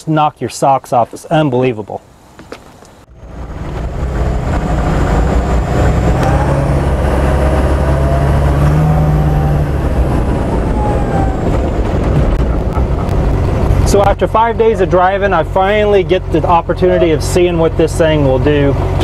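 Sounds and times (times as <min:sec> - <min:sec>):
diesel engine and road noise: 0:00.0 - 0:19.0
rising whine: 0:03.0 - 0:14.2.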